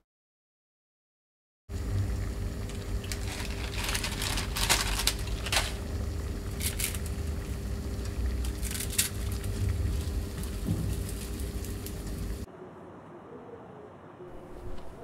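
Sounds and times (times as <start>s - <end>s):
water boiling in a saucepan: 1.7s - 12.5s
dry noodles crunching by hand: 2.9s - 7.6s.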